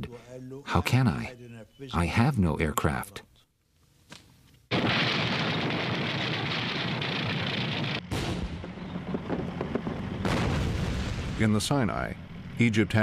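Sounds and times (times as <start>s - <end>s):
artillery guns firing: 4.7s - 11.6s
shells exploding: 4.7s - 11.6s.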